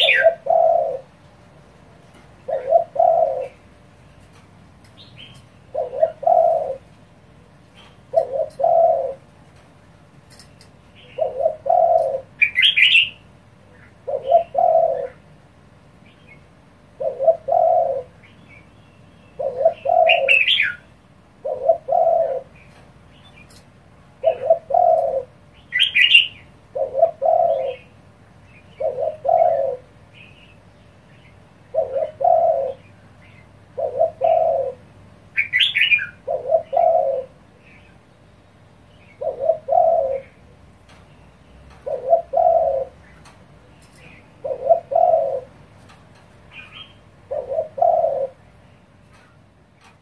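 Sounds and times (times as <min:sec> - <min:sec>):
higher bird chirps: 0:00.0 - 0:01.1, 0:16.0 - 0:23.6
dove cooing: 0:00.0 - 0:01.3, 0:02.1 - 0:04.4, 0:05.2 - 0:09.6, 0:10.3 - 0:15.3, 0:16.8 - 0:18.3, 0:19.3 - 0:22.8, 0:23.4 - 0:30.4, 0:31.6 - 0:38.0, 0:39.0 - 0:41.0, 0:41.7 - 0:49.2.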